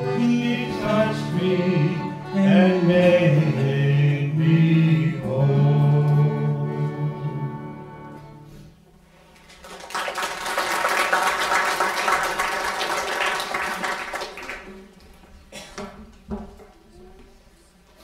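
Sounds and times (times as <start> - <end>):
accordion chord: 0.0 - 8.8
audience applauding: 9.3 - 15.0.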